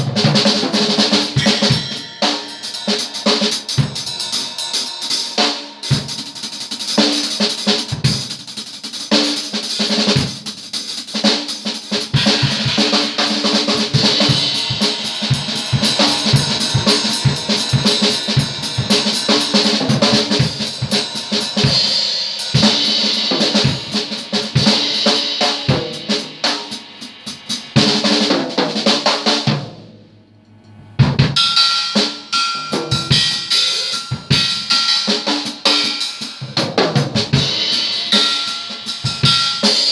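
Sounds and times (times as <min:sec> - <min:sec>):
ringing cymbals: 0:00.0 - 0:10.5, 0:11.5 - 0:28.1, 0:30.4 - 0:39.9
bass drum: 0:12.2 - 0:25.0.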